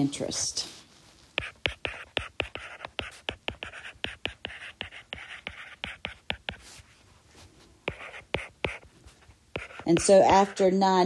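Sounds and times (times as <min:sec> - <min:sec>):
stylus tapping and scratching screen: 0:01.3 - 0:07.0, 0:07.8 - 0:10.8.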